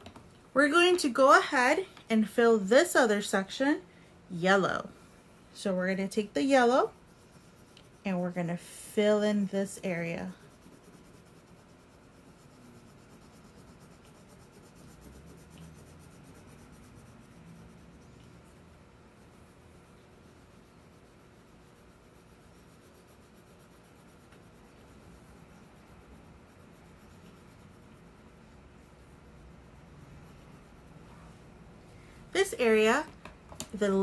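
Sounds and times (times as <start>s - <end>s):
crayon scratching on paper: 4.5s - 31.6s.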